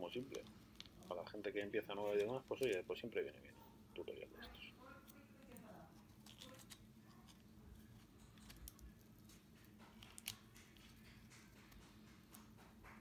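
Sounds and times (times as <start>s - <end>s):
low steady hum: 0.0s - 13.0s
plastic parts clicking and tapping: 5.4s - 13.0s.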